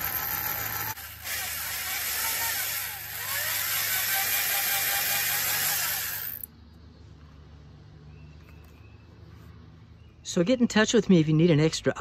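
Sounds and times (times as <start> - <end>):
electric drill boring into wood: 0.0 - 6.5.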